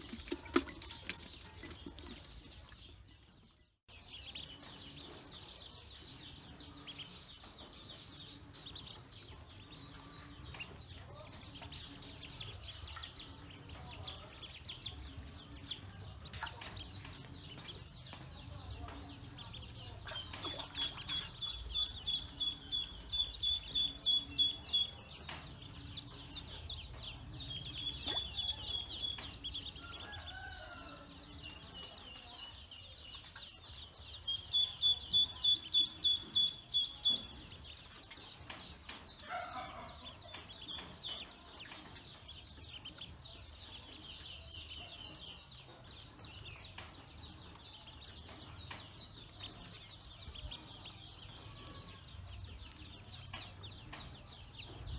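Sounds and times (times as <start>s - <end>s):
ducklings peeping: 0.0s - 54.9s.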